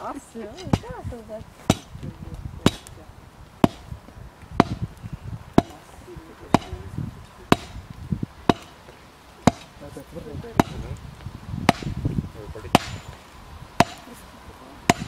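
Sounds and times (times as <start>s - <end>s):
hammer striking hot iron: 0.6s - 0.9s, 1.7s - 2.0s, 2.6s - 3.0s, 3.6s - 3.9s, 4.6s - 4.9s, 5.5s - 5.8s, 6.5s - 6.8s, 7.4s - 9.8s, 10.5s - 11.0s, 11.6s - 12.1s, 12.7s - 13.2s, 13.8s - 14.2s.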